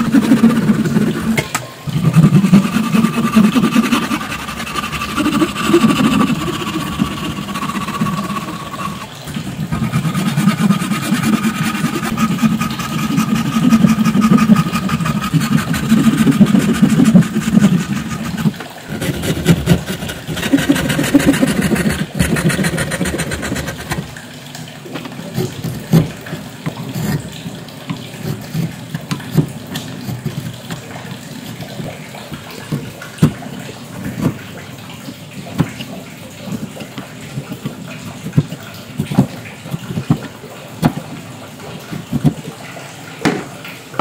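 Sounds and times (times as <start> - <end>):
chisel paring wood: 0.0 - 24.1
hand saw cutting wood: 0.0 - 24.1, 25.3 - 30.8, 36.5 - 41.1.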